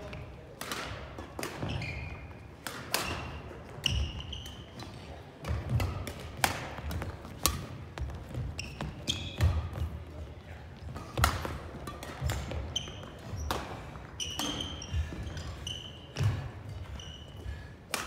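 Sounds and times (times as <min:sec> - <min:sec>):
sneakers squeaking on wooden floor: 0:01.5 - 0:02.4, 0:03.6 - 0:04.8, 0:07.8 - 0:10.0, 0:12.2 - 0:17.6
racket hitting shuttlecock: 0:02.6 - 0:04.1, 0:05.4 - 0:08.4, 0:10.9 - 0:14.8.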